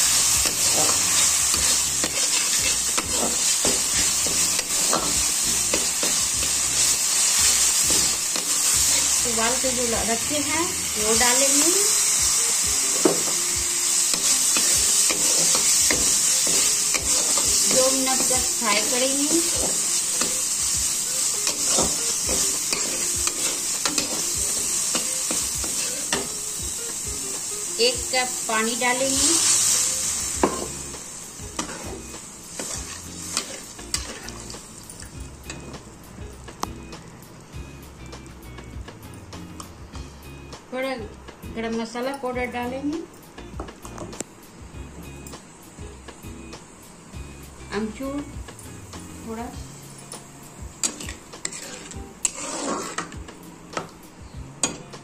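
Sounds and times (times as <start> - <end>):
spices sizzling in oil: 0.0 - 55.0
spatula scraping a pan: 0.4 - 5.1, 21.4 - 26.3, 31.6 - 32.0, 32.6 - 34.5, 50.8 - 53.2
spoon scraping and stirring: 1.6 - 3.3, 50.8 - 53.2.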